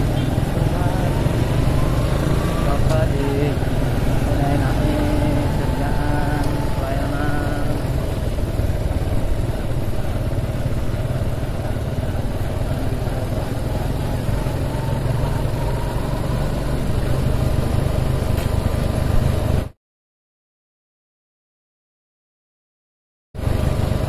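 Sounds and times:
scooter engine running: 0:00.0 - 0:19.7, 0:23.4 - 0:24.0.

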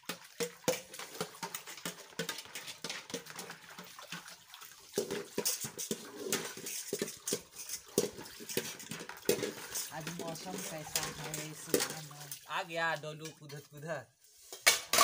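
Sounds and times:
water splashing: 0:00.0 - 0:13.8
steel dishes clinking: 0:05.0 - 0:12.3.

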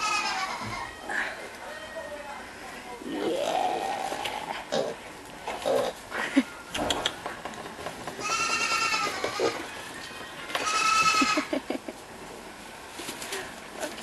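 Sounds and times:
piglets grunting and snuffling: 0:03.0 - 0:06.1.

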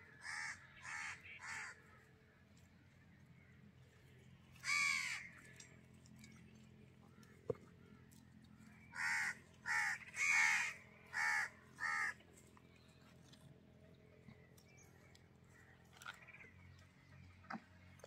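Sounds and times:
crow cawing: 0:00.2 - 0:01.8, 0:04.6 - 0:05.3, 0:08.9 - 0:12.2.

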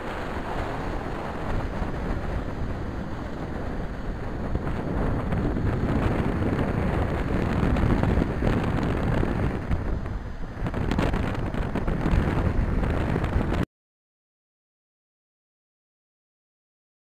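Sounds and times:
wind buffeting microphone: 0:00.0 - 0:13.6.

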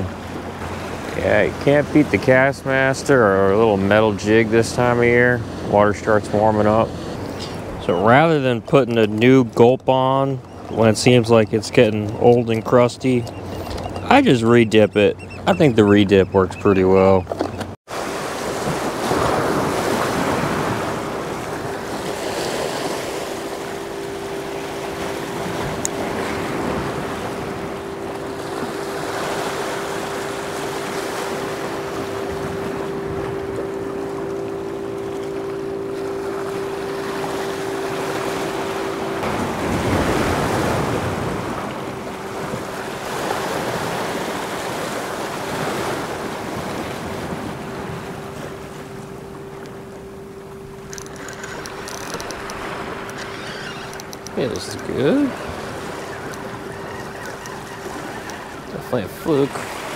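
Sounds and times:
water noise: 0:00.0 - 0:59.9
steady hum: 0:19.1 - 0:59.9.

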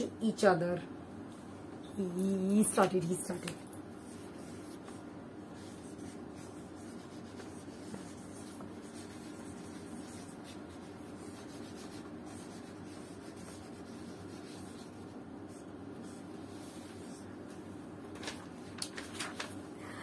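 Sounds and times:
steady background hum: 0:00.0 - 0:20.0
marker pen writing on board: 0:05.6 - 0:16.2.

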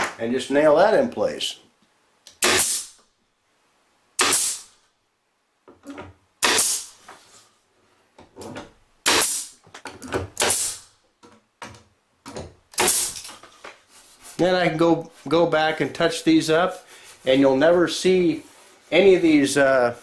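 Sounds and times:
power stapler firing: 0:02.3 - 0:03.0, 0:04.2 - 0:04.7, 0:06.4 - 0:06.9, 0:09.0 - 0:09.6, 0:10.4 - 0:10.9, 0:12.7 - 0:13.2.

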